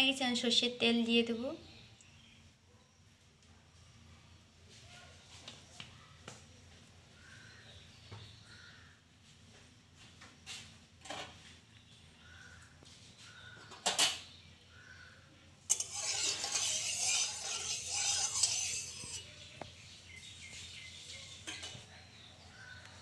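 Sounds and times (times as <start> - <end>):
metal spoon clinking on pan: 15.7 - 19.4
spoon scraping a pan: 15.7 - 19.8.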